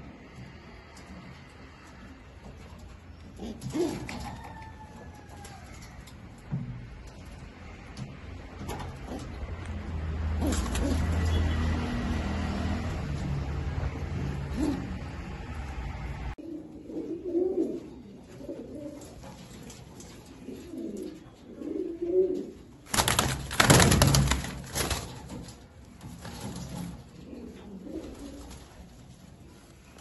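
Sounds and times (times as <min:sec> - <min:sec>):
pigeons cooing: 0:00.0 - 0:06.0, 0:10.3 - 0:11.4, 0:14.0 - 0:22.9, 0:26.9 - 0:29.6
rustling and clattering: 0:00.0 - 0:11.2, 0:17.6 - 0:30.0.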